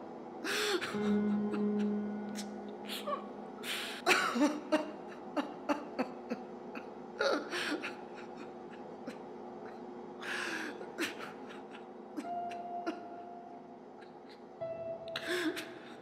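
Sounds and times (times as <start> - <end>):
low drone: 0.7 - 4.1.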